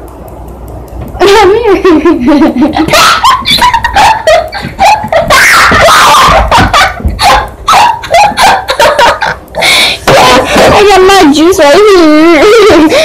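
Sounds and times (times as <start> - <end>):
children shrieking with laughter: 2.8 - 9.4.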